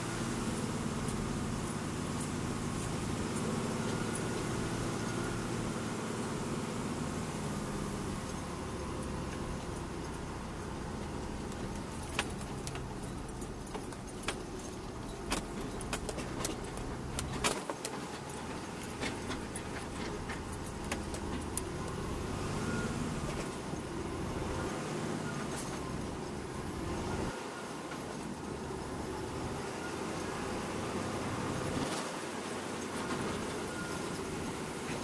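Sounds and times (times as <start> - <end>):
diesel engine running: 0.0 - 35.0
rattling cab fittings: 11.0 - 21.8
sharp clicks and knocks: 11.0 - 22.0.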